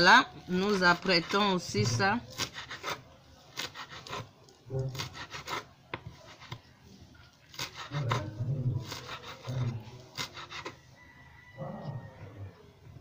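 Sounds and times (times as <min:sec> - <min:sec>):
knife slicing on cutting board: 0:01.8 - 0:06.6, 0:07.5 - 0:10.8.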